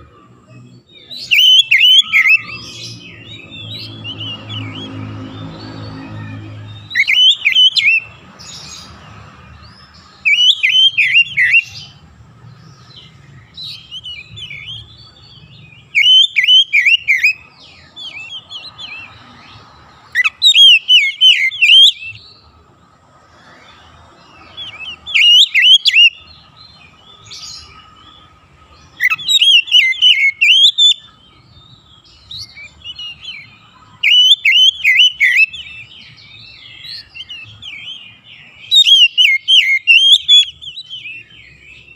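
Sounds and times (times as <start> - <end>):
soft bird twittering: 0.0 - 22.6, 23.2 - 41.9
bird warbling whistles: 25.1 - 26.2, 29.0 - 31.1, 34.0 - 35.6, 38.7 - 40.9.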